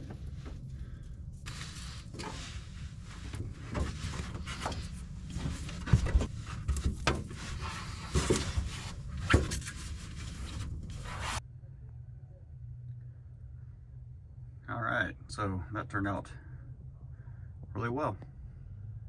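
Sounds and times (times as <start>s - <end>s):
rubbing and scraping handling noise: 0.0s - 11.4s.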